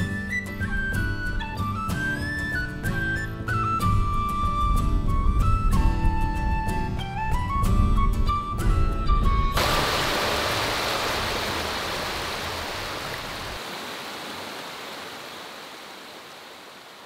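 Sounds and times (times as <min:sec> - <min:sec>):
stream water over rocks: 0:09.6 - 0:17.0.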